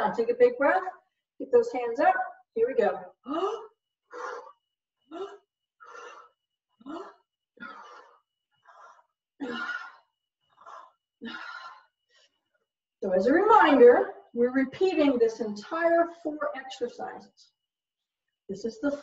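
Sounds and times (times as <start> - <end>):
woman breathing hard: 3.3 - 12.6.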